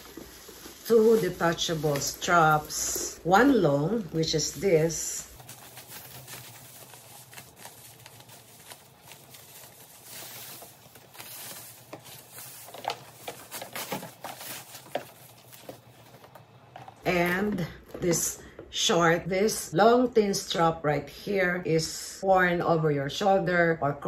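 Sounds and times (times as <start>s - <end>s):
wrapping rustling and crinkling: 0.0s - 17.9s.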